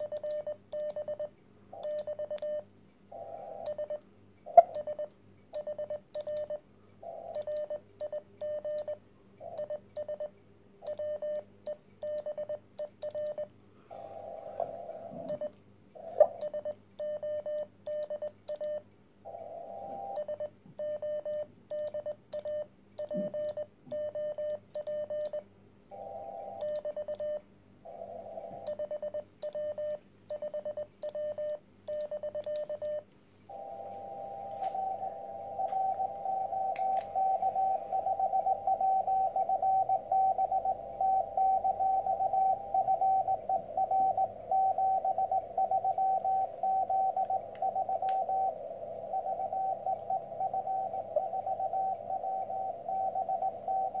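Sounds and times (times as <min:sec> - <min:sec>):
morse code tone: 0:26.0 - 0:54.0
receiver hiss: 0:33.4 - 0:54.0.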